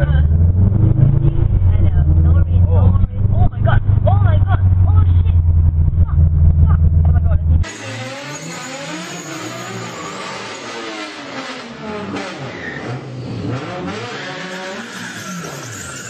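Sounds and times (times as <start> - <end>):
car engines revving: 0.0 - 16.0
tyres squealing: 13.9 - 16.0.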